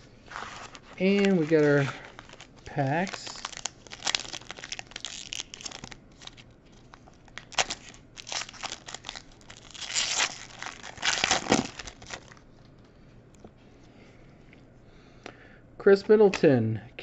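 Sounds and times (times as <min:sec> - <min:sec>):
foil wrapper tearing and crinkling: 0:00.3 - 0:12.4.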